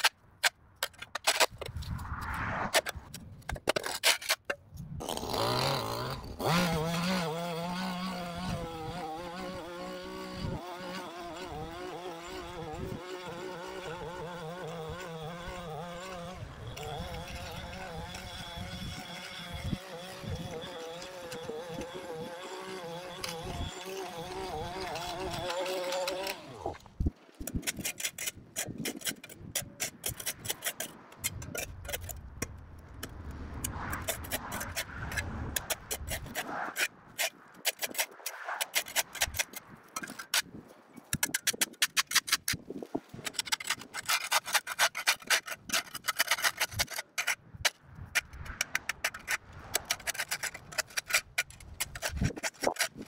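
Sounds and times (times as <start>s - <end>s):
metal scraper on concrete: 0.8s - 2.0s, 2.6s - 53.0s
motor droning: 5.2s - 26.8s.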